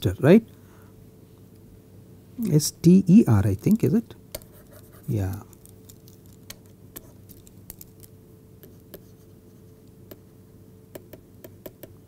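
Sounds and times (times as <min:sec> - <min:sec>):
low steady hum: 0:00.0 - 0:12.0
stylus tapping on tablet: 0:10.9 - 0:12.0.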